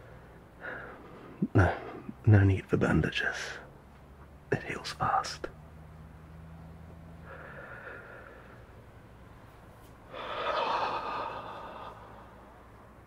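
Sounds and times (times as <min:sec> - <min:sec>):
steady low hum: 0:00.0 - 0:13.0
man breathing out: 0:07.2 - 0:08.7, 0:10.1 - 0:12.5.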